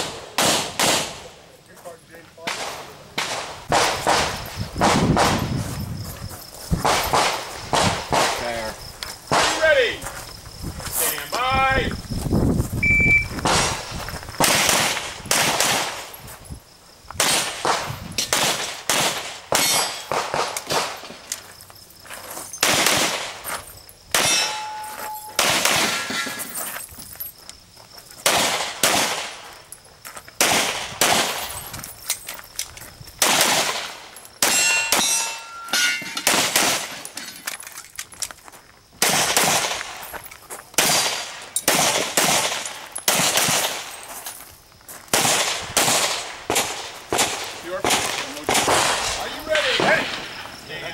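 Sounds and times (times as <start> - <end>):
pistol shots: 0.0 - 1.4, 2.5 - 5.4, 6.8 - 8.5, 9.3 - 9.6, 13.4 - 13.8, 14.4 - 16.1, 17.2 - 21.1, 22.6 - 23.4, 24.1 - 26.3, 28.2 - 29.4, 30.4 - 31.5, 33.2 - 37.1, 39.0 - 39.8, 40.8 - 43.9, 45.1 - 50.3
steel targets ringing: 24.2 - 26.4, 34.4 - 36.3.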